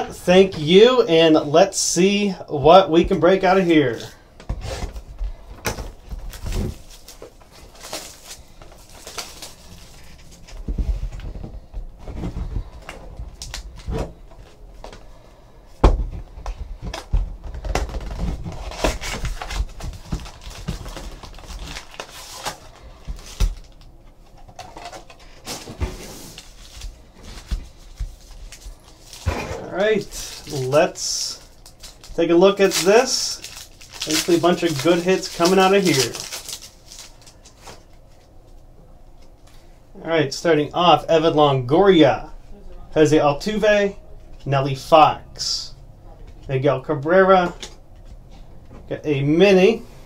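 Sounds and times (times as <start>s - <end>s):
foil card packs rustling: 3.0s - 15.2s, 16.2s - 38.6s
plastic shrink wrap crinkling: 5.8s - 11.4s, 12.3s - 15.0s, 16.9s - 38.6s.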